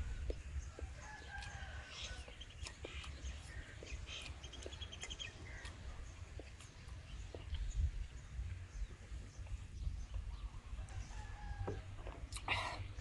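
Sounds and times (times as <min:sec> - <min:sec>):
low wind rumble on microphone: 0:00.0 - 0:13.0
small eating clicks: 0:00.2 - 0:07.8
rooster crowing: 0:01.0 - 0:02.3.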